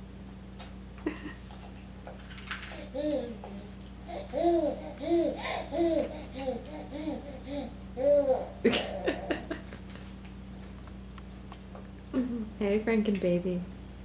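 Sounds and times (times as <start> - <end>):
baby babbling: 2.9 - 8.6.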